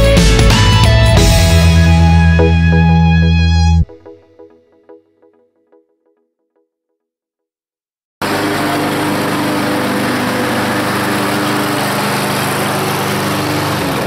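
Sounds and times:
lawn mower engine running: 0:08.2 - 0:14.0.

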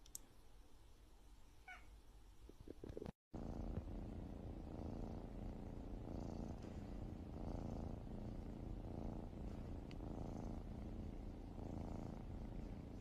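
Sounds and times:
cat purring: 0:02.7 - 0:13.0.

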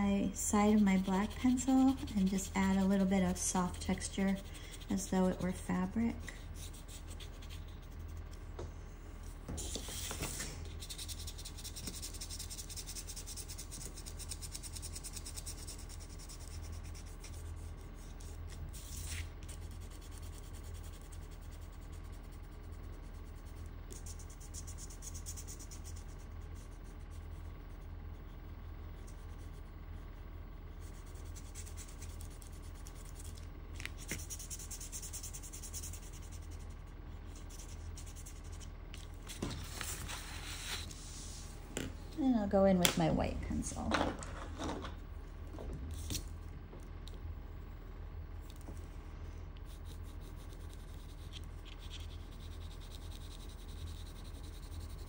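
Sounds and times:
pencil shading on paper: 0:00.6 - 0:05.4, 0:49.7 - 0:55.0.

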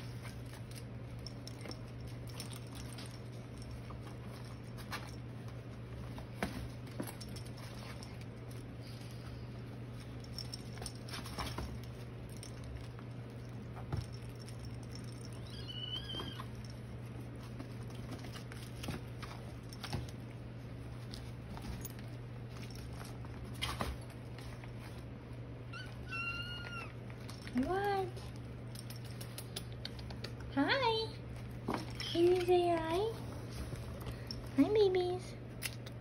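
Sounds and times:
kitten paws pattering: 0:00.0 - 0:36.0.

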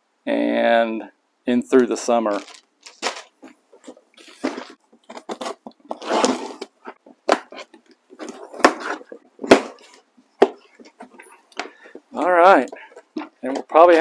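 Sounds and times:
cardboard scraping and rustling: 0:02.3 - 0:12.0, 0:12.6 - 0:14.0
knife slitting packing tape: 0:05.0 - 0:07.8.

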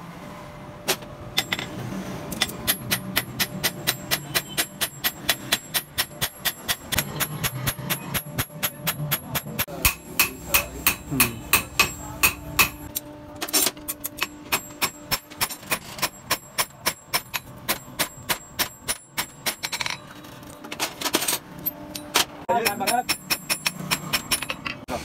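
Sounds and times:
hammer striking metal on anvil: 0:02.4 - 0:13.0, 0:13.9 - 0:20.0, 0:22.0 - 0:24.8.

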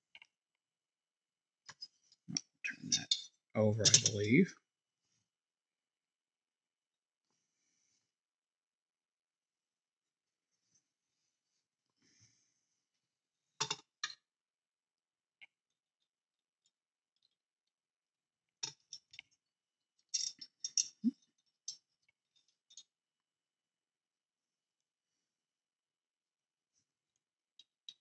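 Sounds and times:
model car parts clicking: 0:13.6 - 0:14.2, 0:20.0 - 0:22.9.

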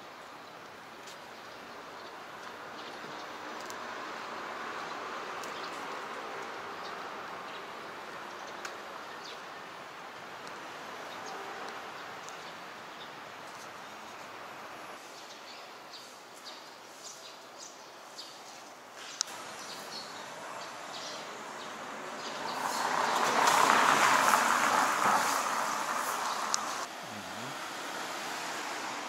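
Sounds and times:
city street ambience: 0:00.0 - 0:29.0
vehicle passing: 0:19.3 - 0:29.0.

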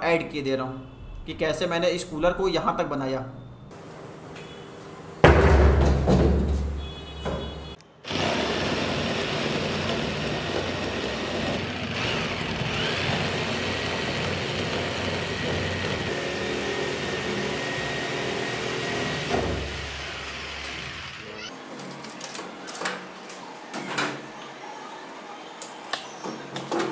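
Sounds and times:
electric jigsaw cutting plastic: 0:08.1 - 0:21.5.

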